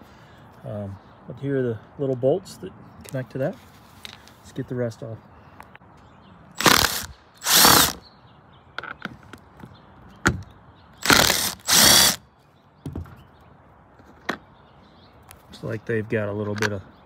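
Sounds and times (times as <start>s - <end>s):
drill backing out screws: 6.6s - 8.0s, 11.0s - 12.2s
screws and tool clicking: 6.6s - 8.0s, 11.0s - 12.2s.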